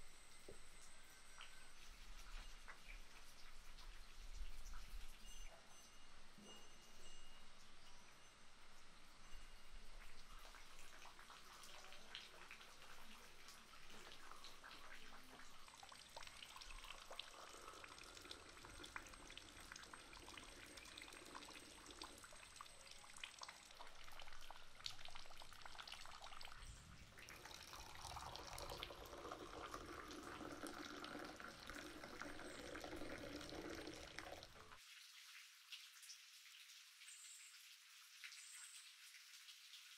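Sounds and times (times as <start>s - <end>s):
coffee pouring into a cup: 10.2s - 34.8s.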